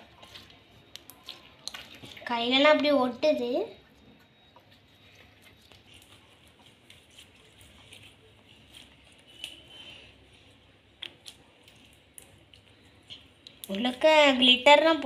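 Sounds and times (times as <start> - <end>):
slime squishing and crackling: 0.0 - 3.0.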